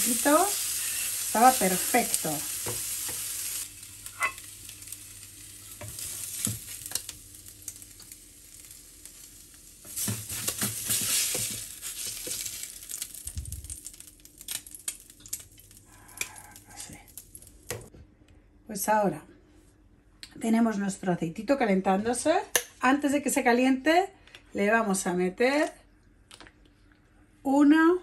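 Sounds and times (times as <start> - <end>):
fish sizzling on a griddle: 0.0 - 17.6
spatula scraping and tapping: 9.9 - 12.5.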